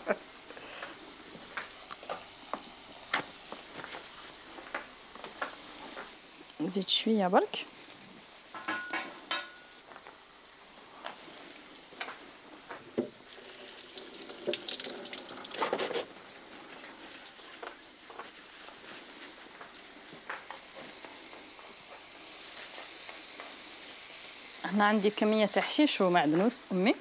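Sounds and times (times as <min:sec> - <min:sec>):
vegetables sizzling in a pan: 0:00.0 - 0:27.0.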